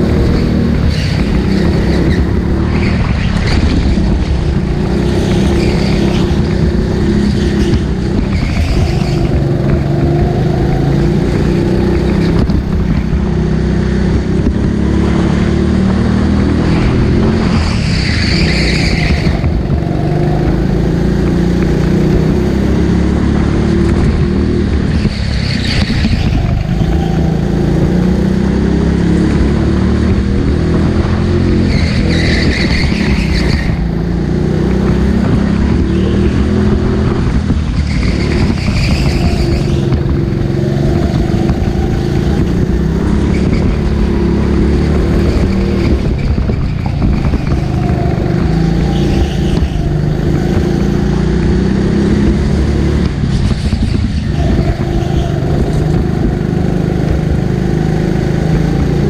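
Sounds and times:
go-kart engine racing: 0:00.0 - 0:59.0
high-pitched squeals: 0:45.1 - 0:51.1.

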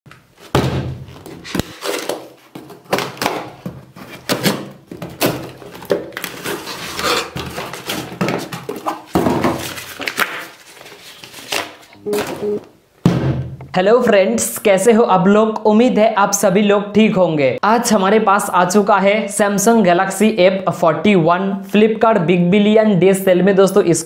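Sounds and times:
paper tearing: 0:09.6 - 0:11.9.

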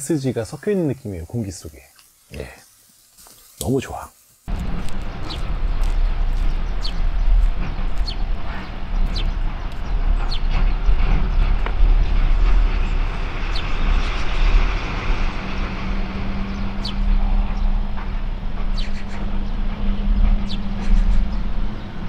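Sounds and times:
steady low hum: 0:04.5 - 0:22.0
strong wind buffeting microphone: 0:04.5 - 0:22.0.

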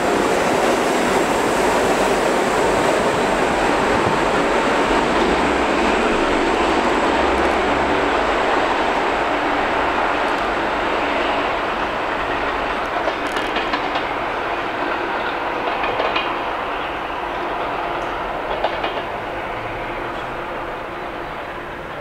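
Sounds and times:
train wheels rumbling on rail: 0:00.0 - 0:22.0
wheels clicking over rail joints: 0:12.2 - 0:19.3.

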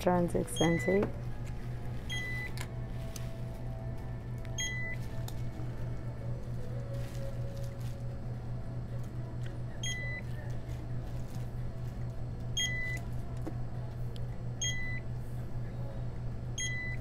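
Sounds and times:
steady low hum: 0:00.0 - 0:17.0
barcode scanner beeping: 0:00.5 - 0:01.1, 0:02.0 - 0:02.6, 0:04.6 - 0:05.1, 0:09.8 - 0:10.3, 0:12.6 - 0:13.0, 0:14.6 - 0:15.0, 0:16.6 - 0:17.0.

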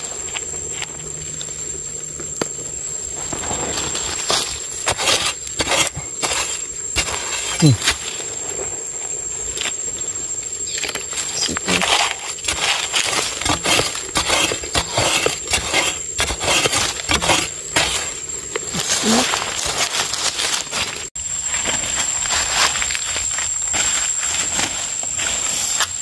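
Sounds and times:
metal blade digging into soil: 0:04.0 - 0:08.1, 0:10.8 - 0:21.0.

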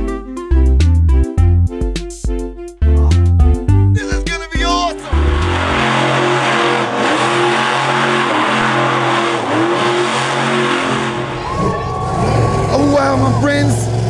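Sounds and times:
truck engine revving: 0:04.8 - 0:14.0.

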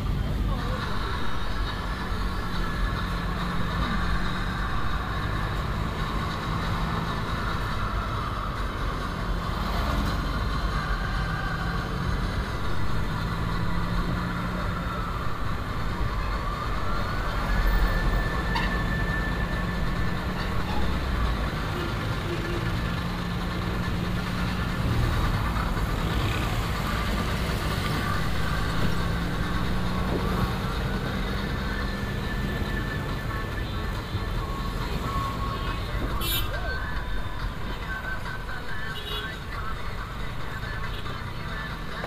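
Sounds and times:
vehicle engine and road noise: 0:00.0 - 0:42.0.

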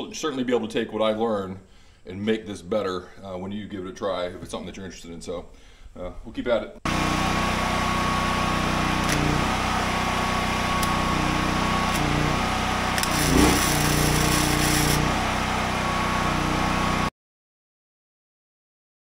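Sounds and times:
generator humming: 0:06.9 - 0:17.1
crackling welding arc: 0:11.8 - 0:15.2.

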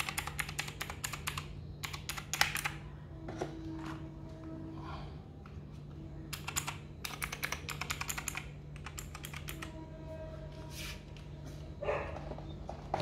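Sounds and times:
mechanical keyboard key clicks: 0:00.0 - 0:02.8, 0:06.3 - 0:09.7.

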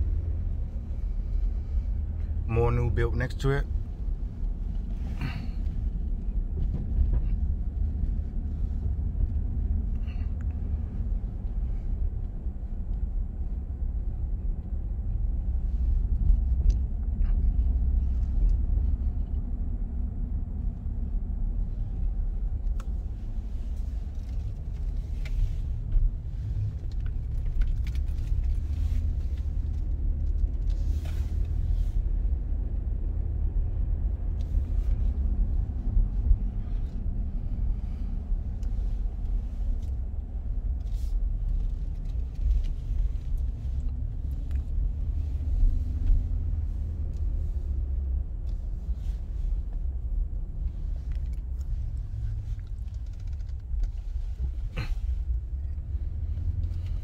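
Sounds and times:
vehicle engine and tyres rumbling: 0:00.0 - 0:57.0
faint clicks and rattles: 0:23.7 - 0:31.6, 0:50.6 - 0:57.0.

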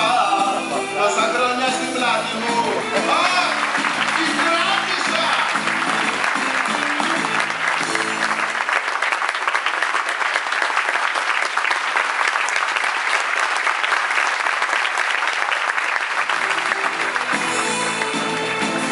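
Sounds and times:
music: 0:00.0 - 0:08.8, 0:16.3 - 0:18.9
audience applauding: 0:00.0 - 0:18.9.

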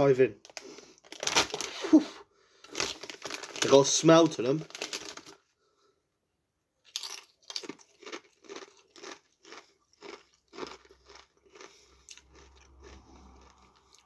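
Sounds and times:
tortilla chip crunching: 0:02.7 - 0:04.0, 0:04.6 - 0:05.4, 0:06.8 - 0:14.0.

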